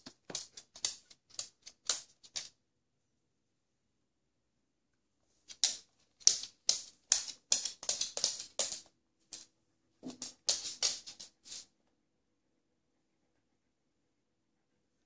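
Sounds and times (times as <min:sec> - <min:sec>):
dog claws clicking on floor: 0:00.0 - 0:02.6, 0:05.4 - 0:11.7.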